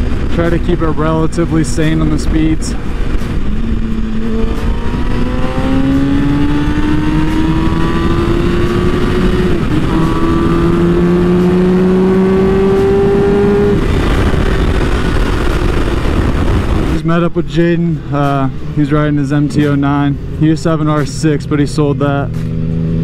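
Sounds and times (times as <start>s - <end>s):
motorcycle engine: 0.0s - 17.0s, 18.5s - 23.0s
wind rush on microphone: 0.0s - 17.0s.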